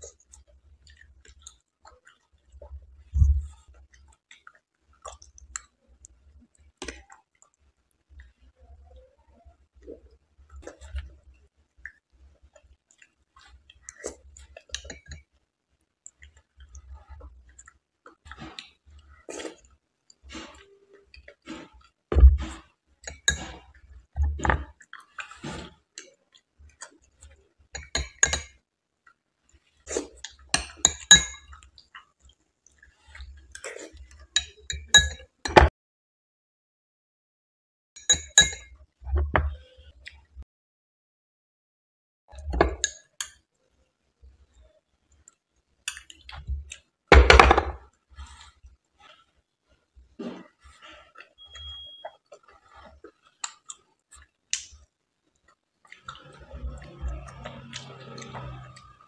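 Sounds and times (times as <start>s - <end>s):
chewing and wet mouth sounds: 0.0s - 34.7s, 40.0s - 40.4s, 44.3s - 46.9s, 48.1s - 59.0s
metal spoon clinking on glass bowl: 30.9s - 31.5s, 38.0s - 38.7s.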